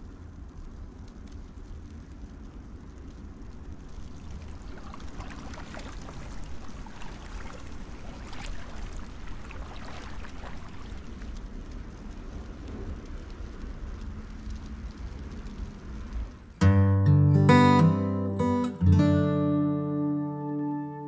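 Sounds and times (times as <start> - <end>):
steady low rumble: 0.0 - 16.6
water splashing and dripping: 3.3 - 12.4.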